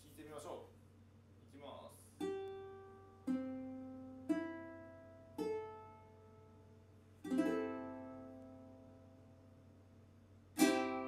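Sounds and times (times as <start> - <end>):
ukulele chord strummed: 2.2 - 6.6, 7.2 - 9.6, 10.6 - 11.0
ukulele plucked notes: 2.2 - 6.6, 7.2 - 9.5, 10.6 - 11.0.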